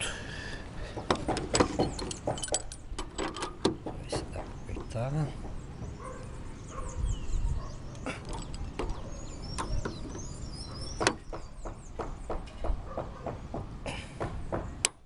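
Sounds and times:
wrench clicking and knocking on metal: 1.0 - 5.6.

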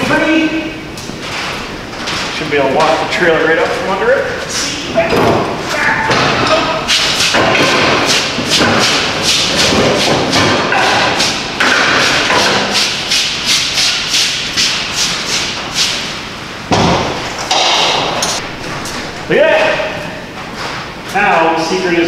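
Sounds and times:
trailer rattling and clanking: 17.2 - 21.2.

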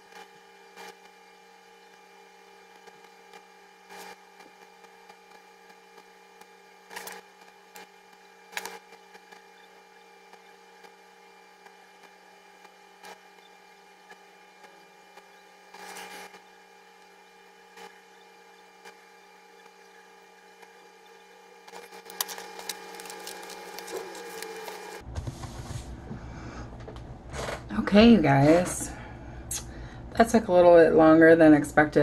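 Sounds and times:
multi-pitched hum: 0.0 - 32.0
notebook rustling: 21.8 - 25.9.

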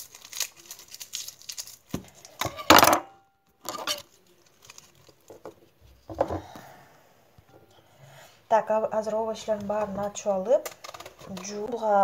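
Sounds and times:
garlic skin crackling: 0.0 - 2.7, 3.6 - 5.5.

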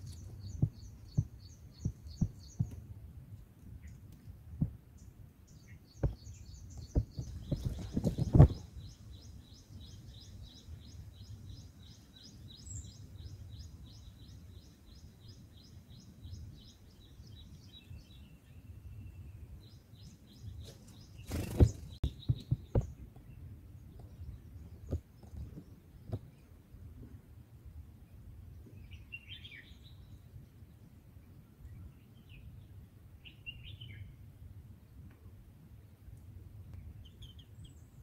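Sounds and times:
low thumps and rustles: 0.0 - 2.8, 4.2 - 4.9, 6.0 - 8.8, 20.6 - 23.3
small bird chirping: 0.0 - 2.8, 5.0 - 26.5, 36.8 - 38.0.

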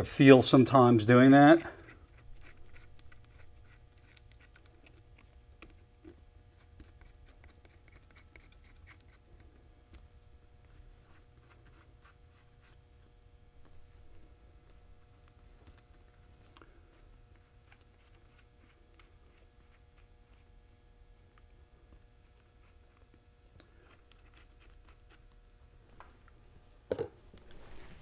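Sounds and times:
faint steady hum: 0.0 - 28.0
small metal clicks and scrapes: 1.8 - 9.6, 22.9 - 25.4.

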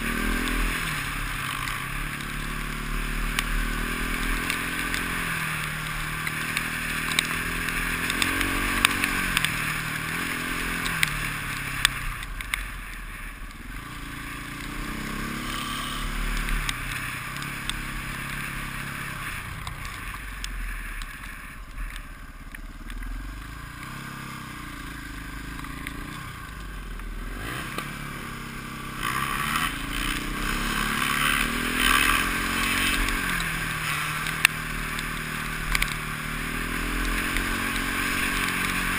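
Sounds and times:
motorcycle engine accelerating: 0.0 - 38.9.

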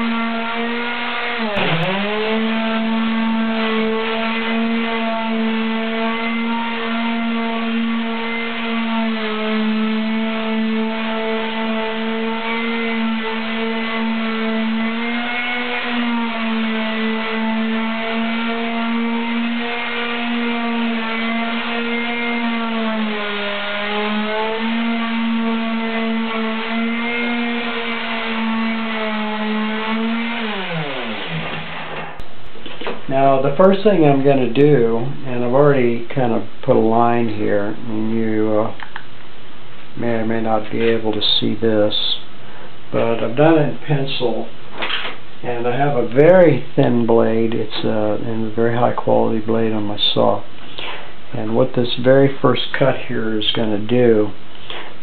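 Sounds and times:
electric sander running: 0.0 - 32.2.

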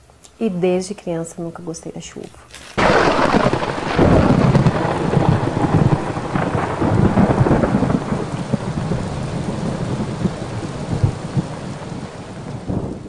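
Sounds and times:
heavy rain: 2.8 - 13.0
rolling thunder: 2.8 - 13.0.

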